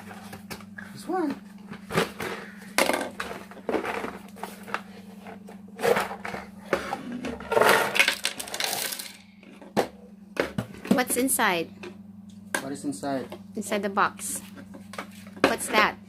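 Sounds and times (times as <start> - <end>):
small plastic pieces clattering on table: 7.5 - 9.2.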